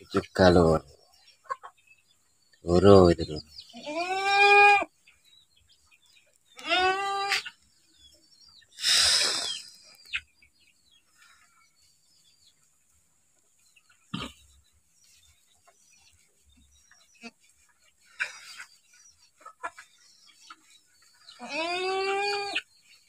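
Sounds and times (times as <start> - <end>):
young goat bleating: 3.7 - 4.9, 6.6 - 7.4, 21.4 - 22.6.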